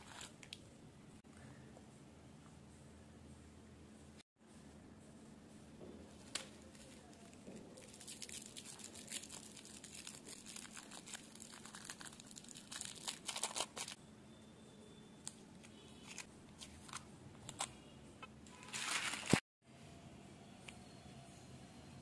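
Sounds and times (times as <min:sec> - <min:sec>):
foil wrappers crinkling: 0:06.3 - 0:14.0.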